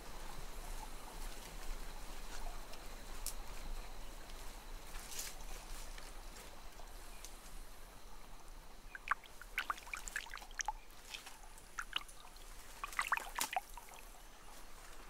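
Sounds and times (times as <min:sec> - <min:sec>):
faint steady hiss: 0:00.0 - 0:15.0
water dripping and splashing: 0:08.9 - 0:14.2.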